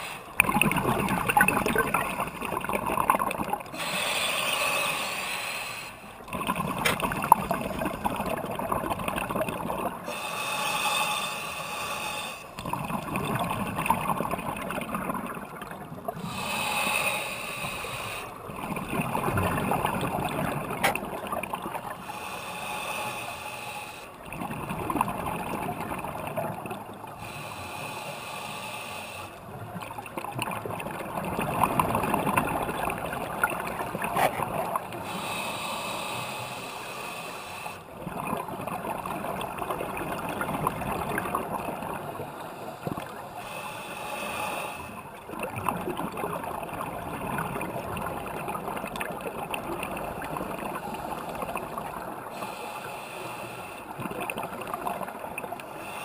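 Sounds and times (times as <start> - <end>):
underwater regulator breathing bubbles: 33.4 - 37.9.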